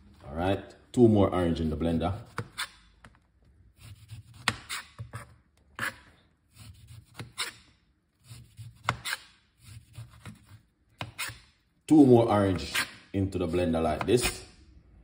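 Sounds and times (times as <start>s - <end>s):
knife slicing orange rind: 3.7s - 5.0s, 5.8s - 11.6s.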